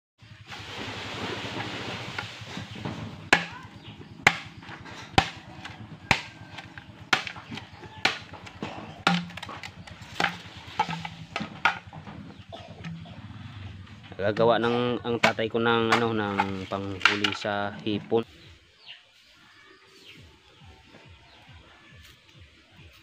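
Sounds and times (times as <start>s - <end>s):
machete striking bamboo: 3.3s - 11.9s, 15.2s - 17.5s.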